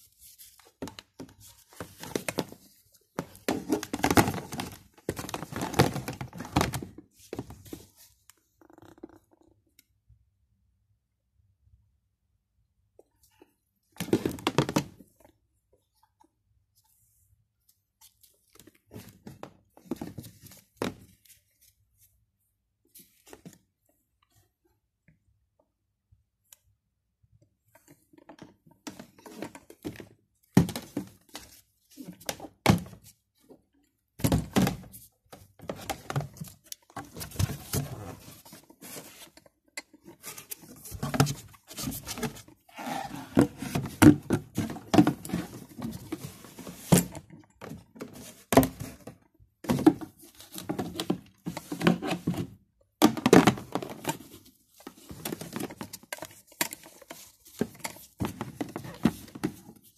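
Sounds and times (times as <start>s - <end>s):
gloved hands handling plastic: 0.0s - 8.6s, 27.6s - 59.9s.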